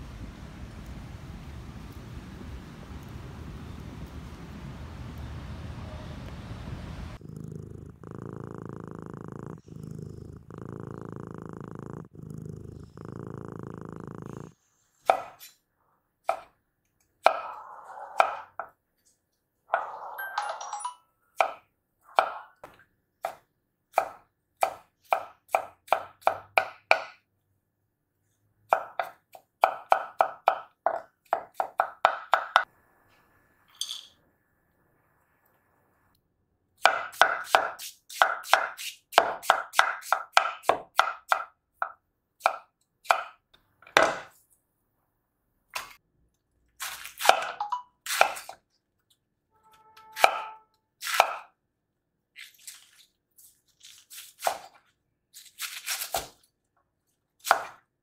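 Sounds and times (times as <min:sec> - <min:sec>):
knife chopping on cutting board: 0:15.0 - 0:15.4, 0:22.2 - 0:27.2, 0:28.7 - 0:32.6, 0:36.8 - 0:43.4, 0:50.2 - 0:51.5, 0:54.4 - 0:54.8, 0:57.4 - 0:57.8.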